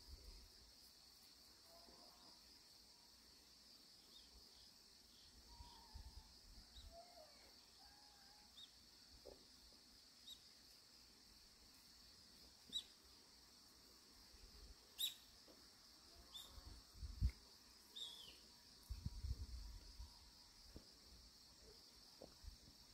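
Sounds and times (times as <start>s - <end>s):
insect drone: 0.0s - 22.9s
short sharp bird chirps: 15.0s - 15.3s, 18.0s - 18.4s.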